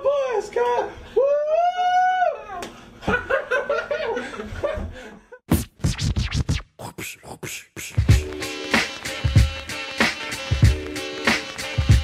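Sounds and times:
man making playful vocal sounds: 6.7 - 8.2.

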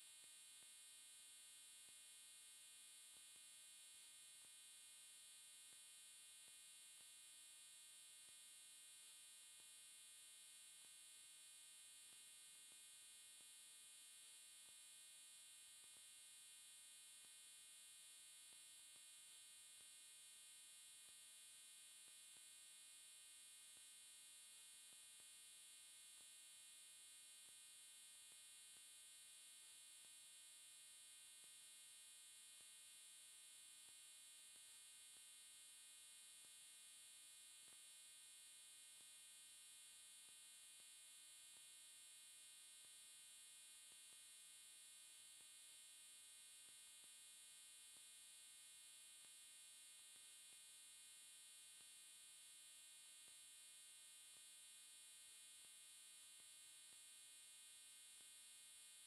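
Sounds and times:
faint electronic hum and hiss: 0.0 - 59.0.

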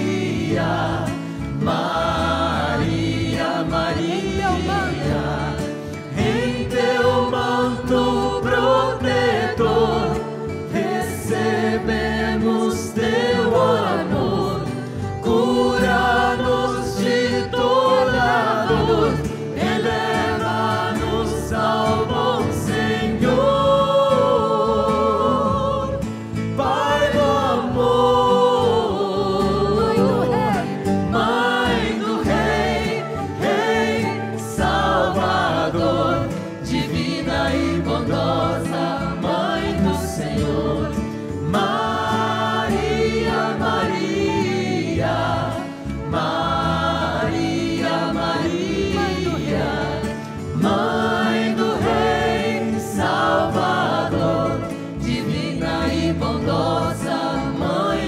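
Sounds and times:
choir and congregation singing hymn: 0.0 - 58.0.

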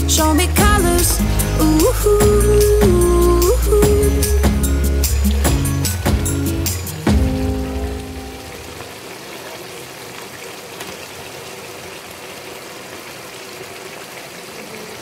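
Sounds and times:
song chord ringing out: 0.0 - 8.9.

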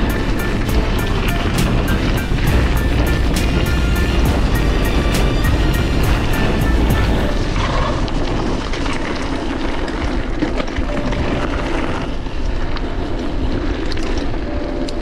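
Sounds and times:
bike tyres rolling on gravel: 0.0 - 15.0
stones and bike rattling: 4.8 - 15.0.

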